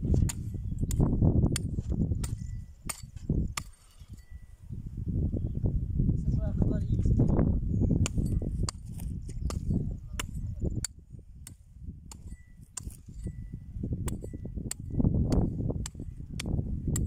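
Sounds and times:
hand hoe striking stony soil: 0.0s - 4.5s, 8.0s - 17.0s.

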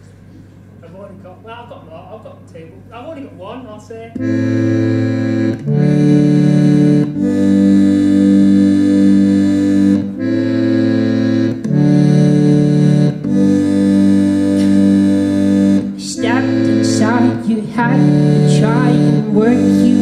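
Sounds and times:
band playing sustained chords: 4.2s - 20.0s.

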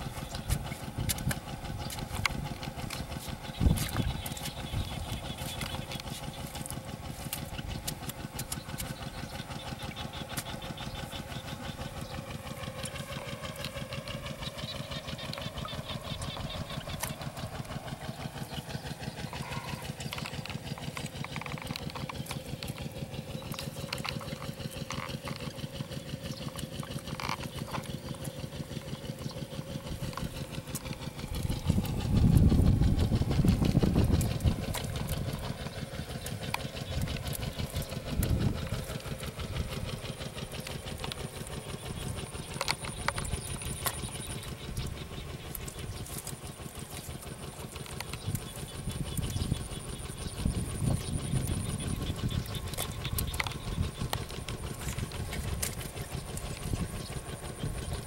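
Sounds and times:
engine running with fast pulse: 0.0s - 58.0s
low rumble: 26.4s - 46.8s.

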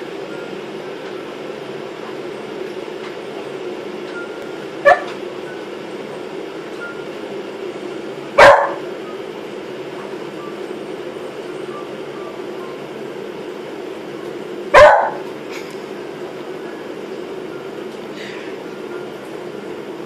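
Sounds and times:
steady background hum: 0.0s - 20.0s
dog barking: 4.8s - 5.2s, 8.4s - 8.8s, 14.7s - 15.2s.

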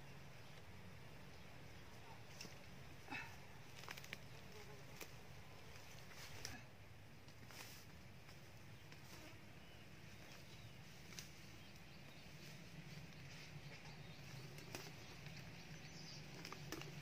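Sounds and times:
faint low hum: 0.0s - 17.0s
soft clicks of weeds pulled: 3.6s - 9.4s, 10.1s - 17.0s.

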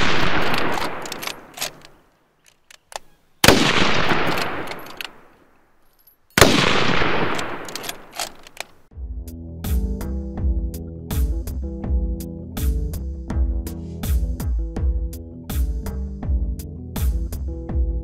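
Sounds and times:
rifle shots with echo: 0.0s - 2.0s, 3.4s - 5.5s, 6.4s - 8.5s
music: 8.9s - 18.0s.

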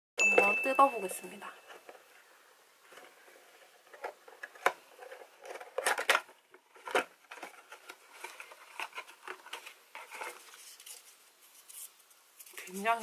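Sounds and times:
paper rustling: 2.8s - 13.0s
paperboard box crackling and snapping: 4.0s - 11.0s.

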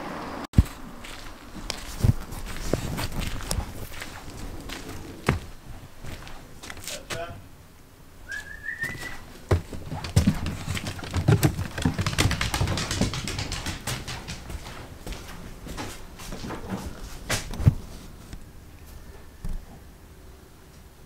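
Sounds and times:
footsteps on wooden deck: 0.6s - 7.3s, 8.8s - 18.4s.

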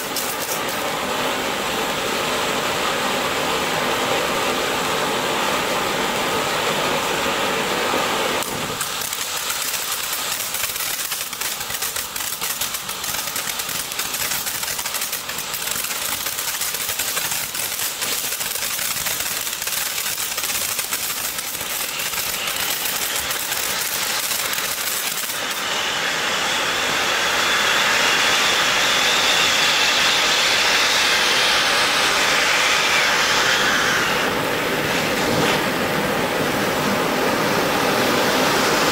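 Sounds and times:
rapid crackle of small pops: 0.0s - 0.8s, 8.4s - 25.6s
firework fountain hissing: 0.0s - 38.9s.

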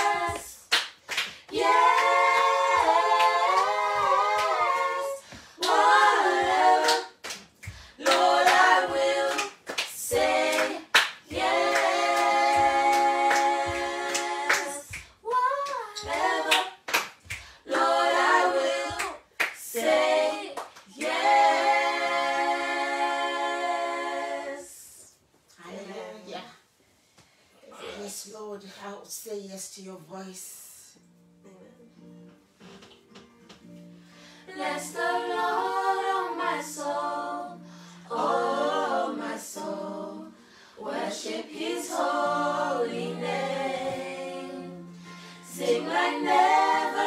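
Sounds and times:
hand claps: 0.0s - 5.0s, 6.4s - 17.9s, 18.8s - 19.9s
group singing a cappella: 0.0s - 25.2s, 34.4s - 47.0s.

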